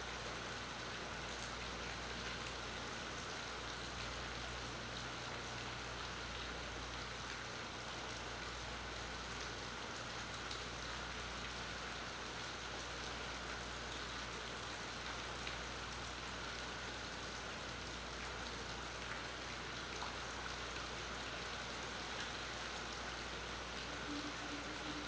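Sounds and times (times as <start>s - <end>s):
steady rain falling: 0.0s - 25.0s
faint steady tone: 22.0s - 25.0s.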